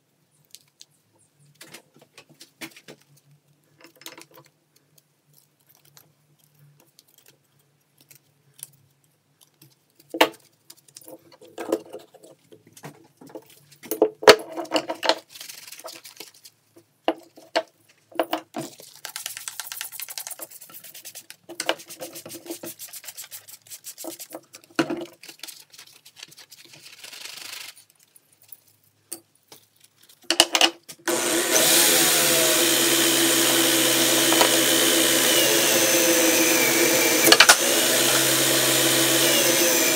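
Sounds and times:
electric drill with wire brush: 31.1s - 39.9s.

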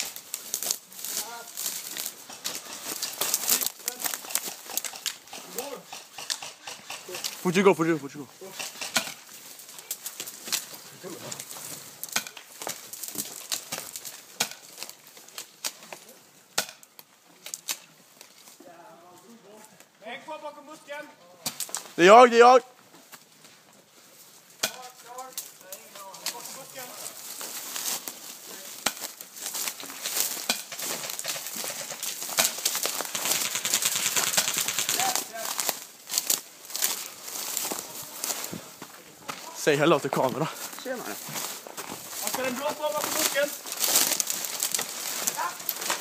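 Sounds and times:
footsteps crunching through weeds and snow: 0.0s - 15.7s, 23.0s - 46.0s
dry brush crackling and snapping: 0.0s - 18.8s, 21.4s - 22.2s, 24.2s - 46.0s.

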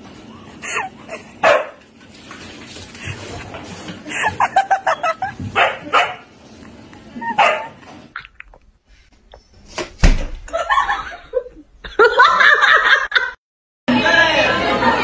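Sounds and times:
dog barking: 1.4s - 1.8s, 5.6s - 6.3s, 7.4s - 7.8s.

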